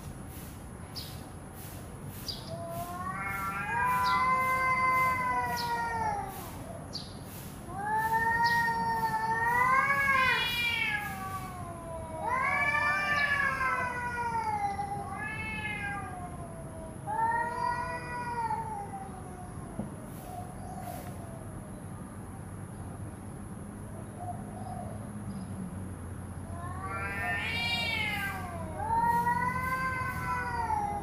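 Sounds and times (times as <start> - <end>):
cats yowling: 2.4 - 6.9, 7.6 - 21.4, 26.4 - 31.0.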